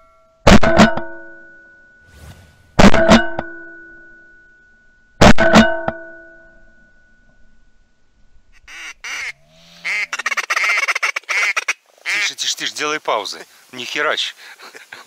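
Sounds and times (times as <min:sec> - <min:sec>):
ringing tone: 0:00.0 - 0:02.1, 0:03.1 - 0:07.9
duck call quacks: 0:08.6 - 0:12.4.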